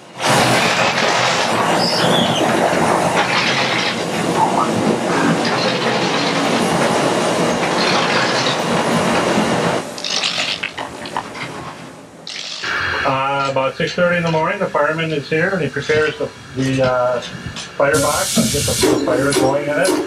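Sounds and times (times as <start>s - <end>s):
coal conveyor clattering: 0.0s - 9.2s.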